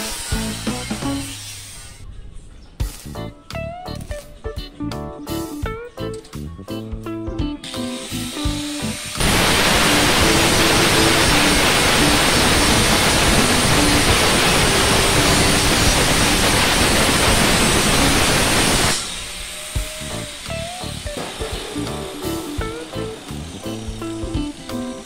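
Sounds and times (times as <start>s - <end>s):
angle grinder grinding steel: 0.0s - 2.0s, 7.6s - 25.0s
background music: 0.0s - 9.3s, 19.8s - 25.0s.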